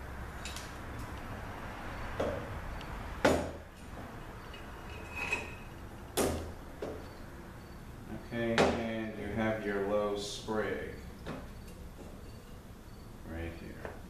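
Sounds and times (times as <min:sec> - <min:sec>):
short metallic ring: 0:04.4 - 0:05.8.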